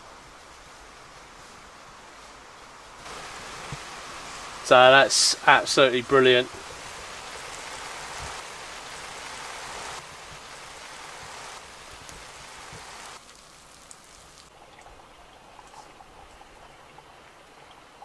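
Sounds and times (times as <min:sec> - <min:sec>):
shower spray hissing: 0:03.0 - 0:14.5.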